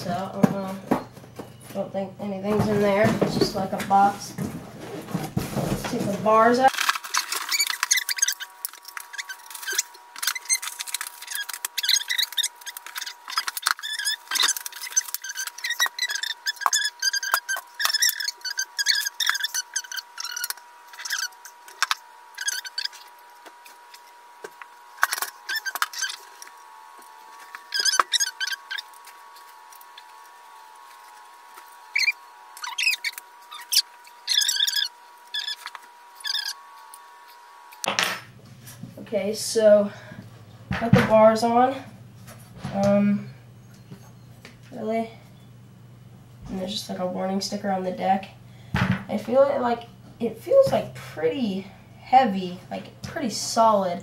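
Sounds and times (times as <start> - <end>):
packaging rustling and crinkling: 6.7 - 16.6
metal parts clicking and scraping: 6.7 - 23.1.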